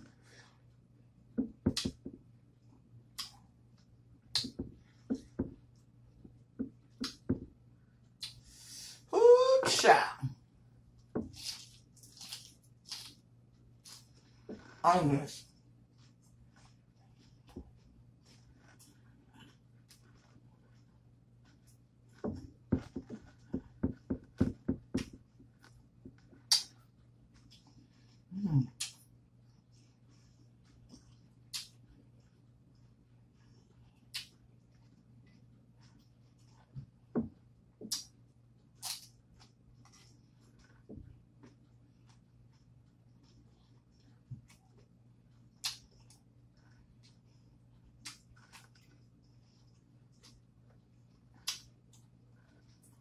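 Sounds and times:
crunchy chewing of salad: 11.3 - 14.8, 38.7 - 53.0
person chewing crunchy vegetables: 11.3 - 14.8.

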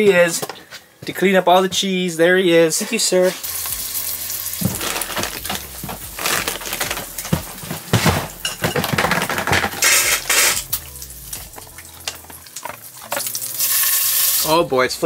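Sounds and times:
plastic bin clattering on floor: 4.6 - 10.3
plastic water bottle handled: 4.6 - 10.3.

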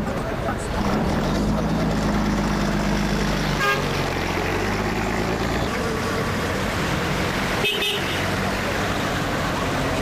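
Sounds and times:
vehicle engine running: 0.0 - 10.0
car horn toot: 3.6 - 3.9, 7.6 - 8.2.

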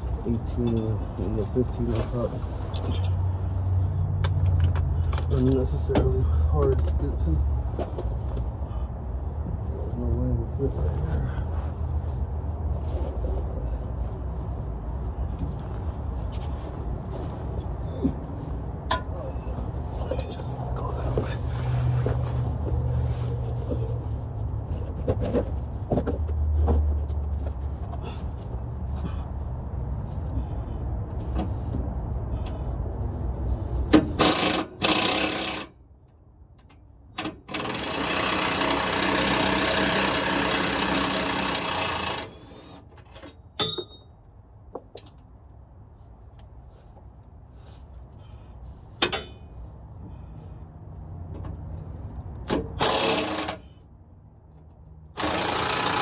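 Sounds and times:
hand tools clinking: 20.1 - 20.6, 43.6 - 44.1
cordless power tool on bolts: 34.2 - 35.7, 37.2 - 42.8, 52.8 - 53.7, 55.2 - 56.0.

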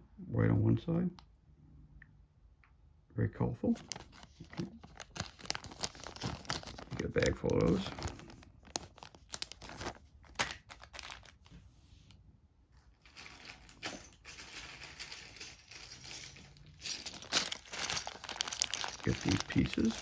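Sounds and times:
plastic bags crinkling: 3.8 - 11.6, 12.8 - 20.0.

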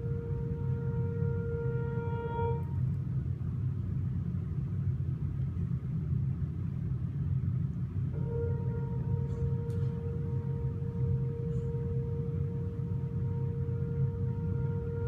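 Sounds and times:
sustained ringing tone: 0.0 - 2.8, 8.2 - 15.0
steady low rumble: 0.0 - 15.0.

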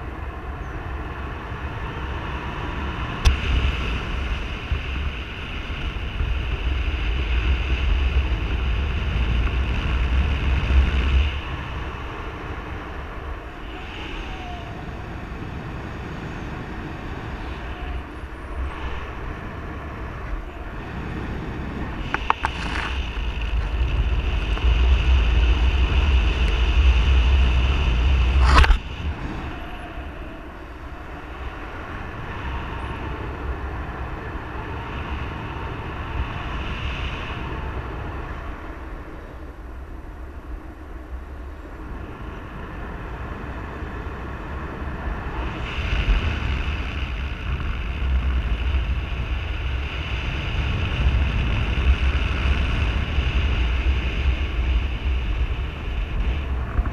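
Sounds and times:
wind buffeting microphone: 0.0 - 56.9.

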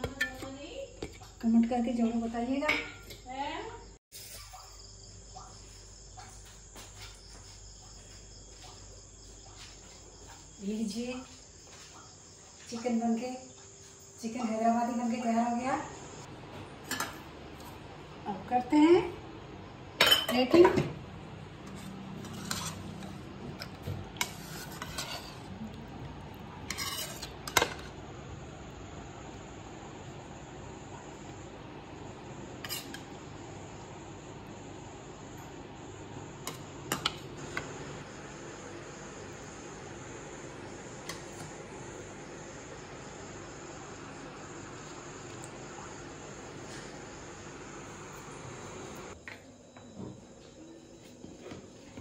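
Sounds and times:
metal spoon scraping pan: 21.6 - 25.5, 26.6 - 27.9, 32.6 - 33.1
steady high-pitched whine: 24.6 - 52.0.

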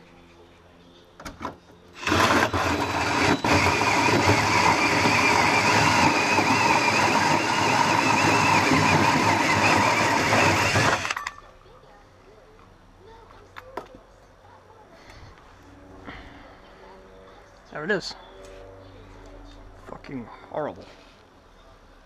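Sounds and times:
hole saw grinding through metal: 2.0 - 11.2.

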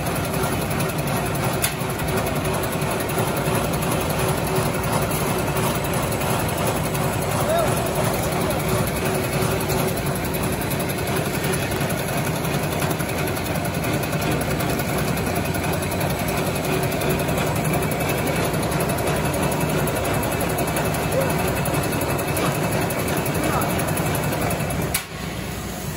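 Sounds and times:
production line machinery running: 0.0 - 25.9.

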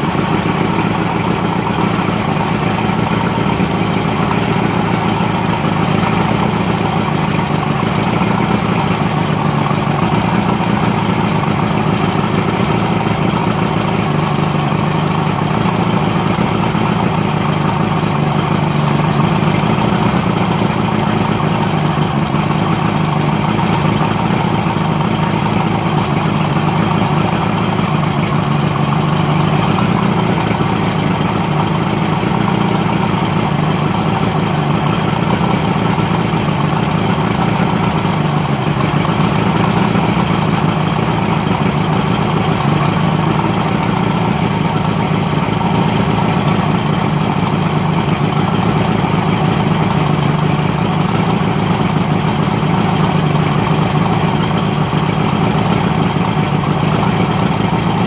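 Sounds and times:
outboard motor idling: 0.0 - 58.0.

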